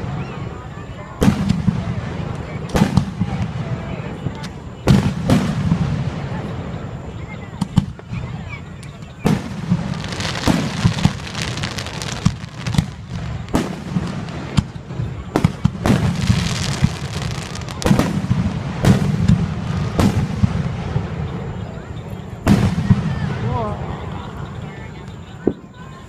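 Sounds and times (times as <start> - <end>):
firework crackle and hiss: 0.0 - 26.0
firework shells bursting: 7.6 - 21.2.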